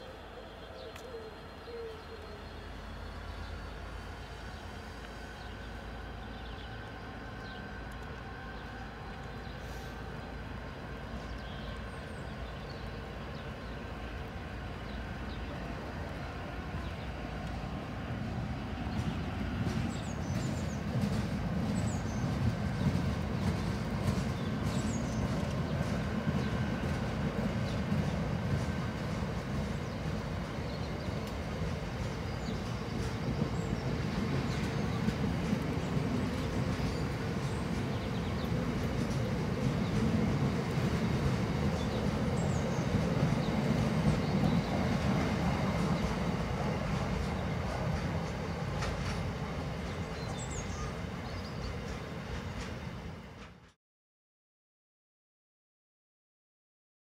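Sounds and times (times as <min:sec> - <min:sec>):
faint clicks: 0:00.9 - 0:01.1, 0:07.3 - 0:08.3, 0:31.2 - 0:31.4
wagon wheels rumbling on rail: 0:02.5 - 0:53.8.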